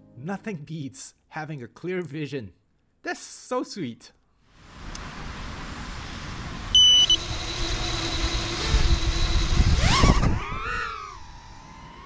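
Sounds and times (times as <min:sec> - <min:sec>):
quadcopter motors whining: 0:04.9 - 0:12.0
loud beep: 0:06.7 - 0:07.3.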